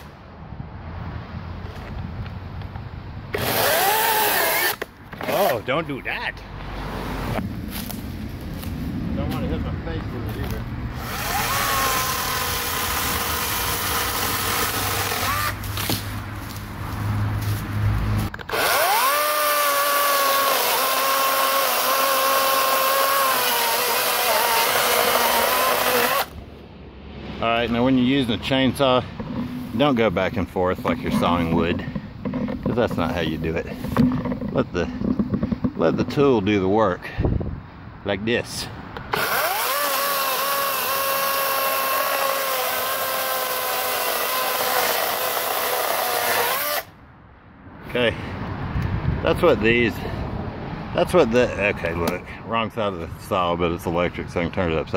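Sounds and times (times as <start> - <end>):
cordless chainsaw cutting log: 3.3 - 5.6, 10.9 - 16.0, 18.4 - 26.4, 39.1 - 46.9
electric motor whine: 11.0 - 15.6, 18.5 - 26.3.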